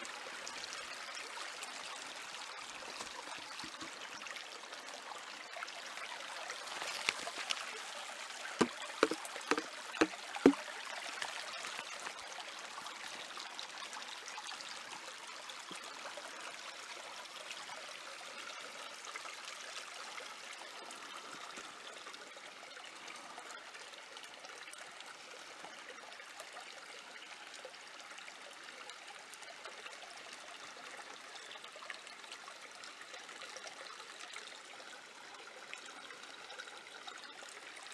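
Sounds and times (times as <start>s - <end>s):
creek running: 0.0s - 37.9s
sharp knocks: 9.0s - 9.7s.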